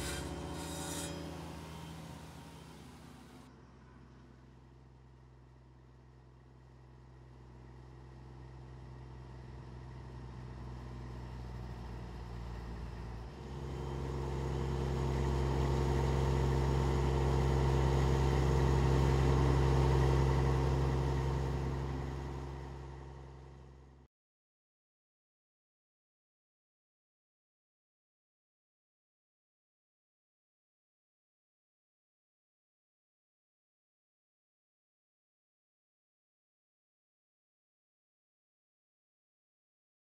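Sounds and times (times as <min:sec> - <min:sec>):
motor humming: 0:00.0 - 0:03.4.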